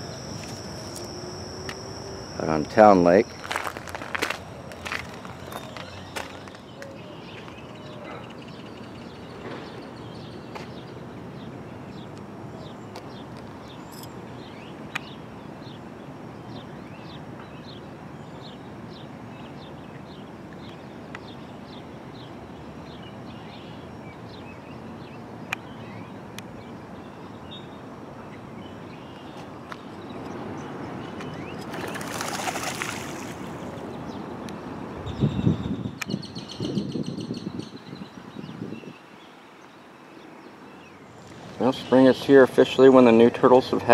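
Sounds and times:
bird chirping: 0:00.0 - 0:11.0
outdoor background noise: 0:00.0 - 0:43.9.

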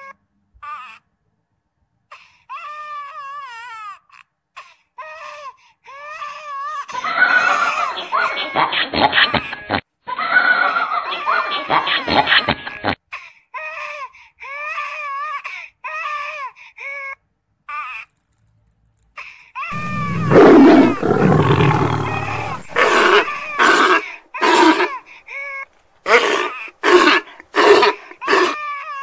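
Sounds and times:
baby monkey screaming: 0:06.9 - 0:09.6, 0:19.7 - 0:29.0.

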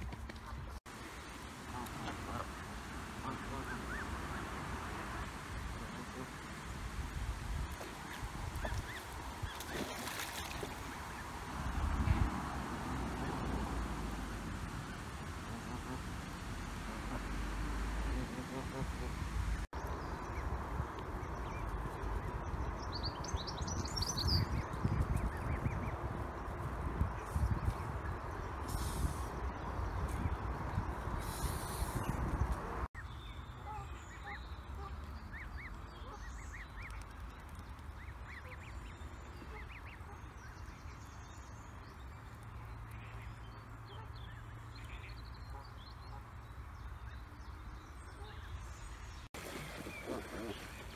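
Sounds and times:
goslings peeping: 0:01.7 - 0:04.5, 0:16.8 - 0:17.4, 0:18.0 - 0:19.7, 0:49.8 - 0:50.9.

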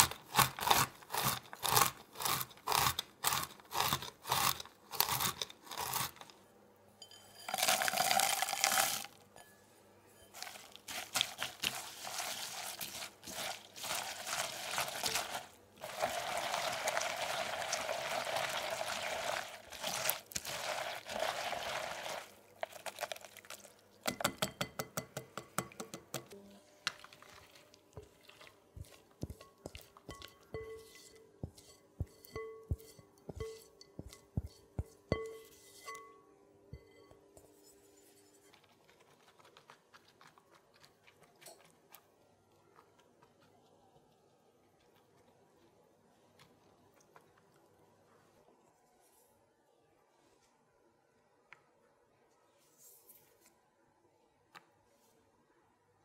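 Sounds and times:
utensil stirring in glass bowl: 0:10.2 - 0:24.8, 0:26.8 - 0:42.0
filling scraped from bowl: 0:10.4 - 0:23.0.

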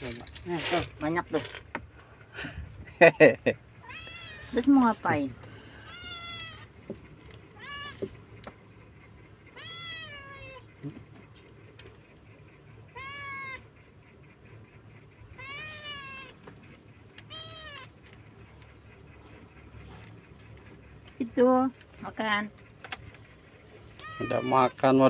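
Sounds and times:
kitten meowing: 0:03.8 - 0:04.6, 0:05.8 - 0:06.7, 0:07.6 - 0:08.0, 0:09.6 - 0:10.6, 0:12.9 - 0:13.6, 0:15.4 - 0:16.4, 0:17.2 - 0:18.0, 0:24.0 - 0:24.8.

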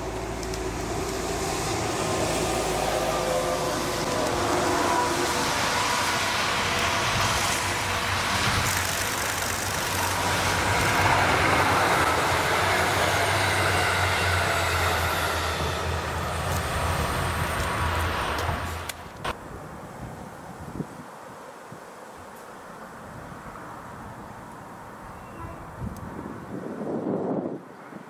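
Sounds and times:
diesel train engines humming: 0:00.0 - 0:19.3
wheels rumbling on rails: 0:00.0 - 0:19.4.

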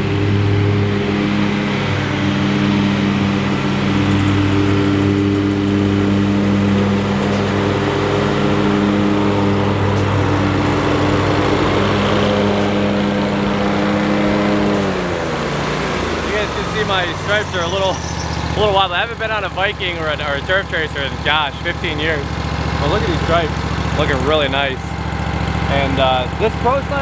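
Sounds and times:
lawn mower engine running: 0:00.0 - 0:27.0.

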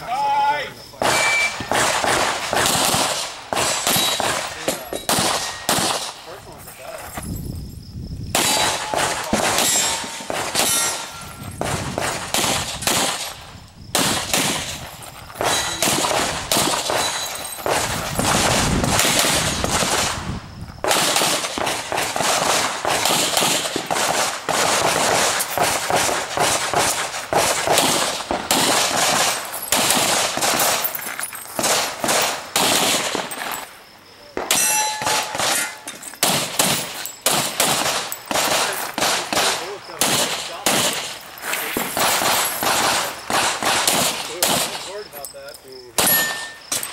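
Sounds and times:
pistol shots: 0:01.0 - 0:06.4, 0:08.3 - 0:31.0, 0:31.6 - 0:33.6, 0:34.3 - 0:45.0, 0:46.0 - 0:46.9
steel target ringing: 0:09.6 - 0:11.4, 0:34.5 - 0:36.0, 0:46.0 - 0:46.9.

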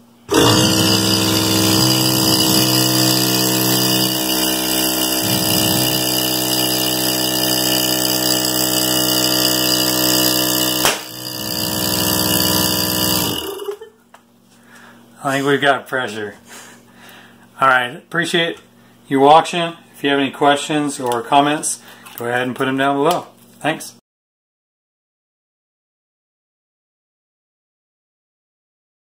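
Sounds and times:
air compressor running: 0:00.0 - 0:13.8.

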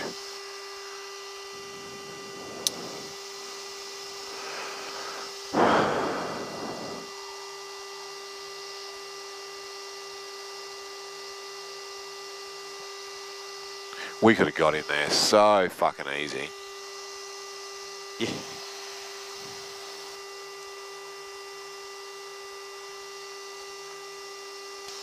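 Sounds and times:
electrical hum with fixed tones: 0:00.0 - 0:25.0
burst of hiss: 0:04.3 - 0:07.1.

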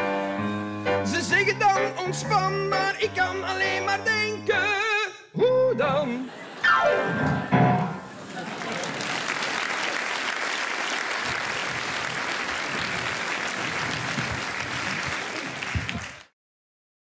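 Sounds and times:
large audience applauding: 0:07.3 - 0:16.4.

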